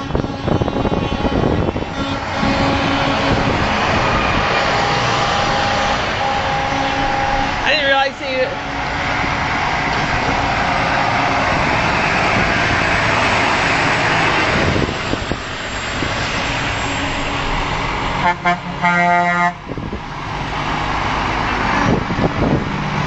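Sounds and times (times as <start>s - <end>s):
truck air horn blast: 0.0s - 9.3s, 16.4s - 17.6s, 18.2s - 19.6s
trucks passing close by: 0.0s - 23.0s.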